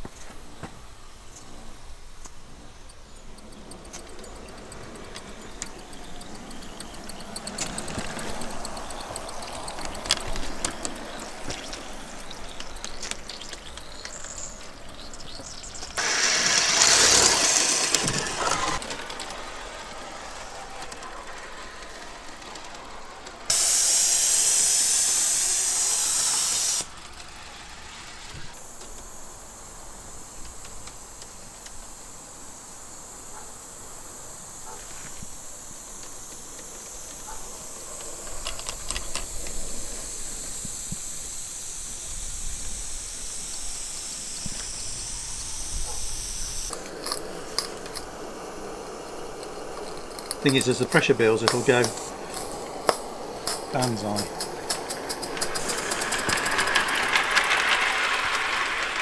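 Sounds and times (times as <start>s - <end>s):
steam locomotive hissing: 0.0s - 59.0s
loud burst of steam: 16.0s - 21.5s, 23.5s - 47.7s, 48.8s - 59.0s.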